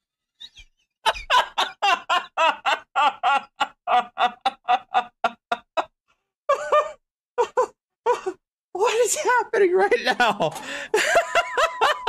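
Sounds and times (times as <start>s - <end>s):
man laughing hard: 1.0s - 5.9s, 6.5s - 8.4s, 10.0s - 12.0s.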